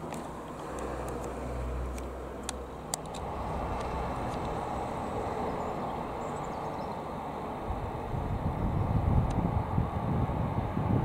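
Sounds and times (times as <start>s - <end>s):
light aircraft droning overhead: 0.0s - 11.0s
sharp clicks: 0.1s - 4.6s.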